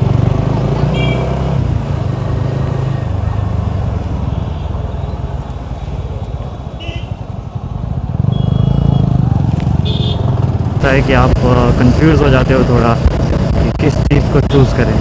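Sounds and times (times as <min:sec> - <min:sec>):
wind and road noise: 0:00.0 - 0:15.0
motorcycle engine running: 0:06.0 - 0:14.2.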